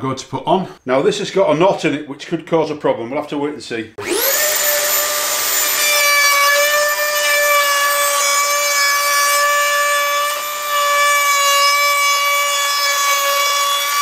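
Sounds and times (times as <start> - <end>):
rotary tool routing wood: 4.0 - 14.0.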